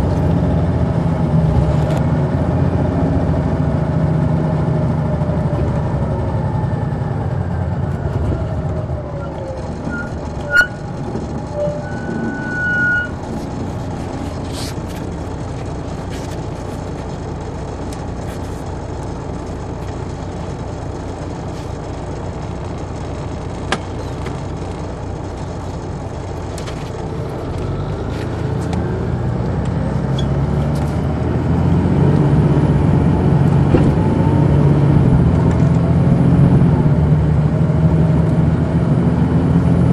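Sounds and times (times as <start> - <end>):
bus diesel engine: 0.0 - 39.9
short high tone: 9.2 - 10.9, 11.5 - 13.2.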